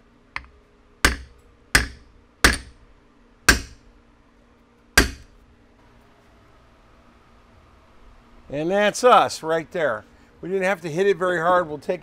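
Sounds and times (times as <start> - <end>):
hammer striking metal: 0.4 - 2.8, 3.5 - 3.8, 5.0 - 5.3.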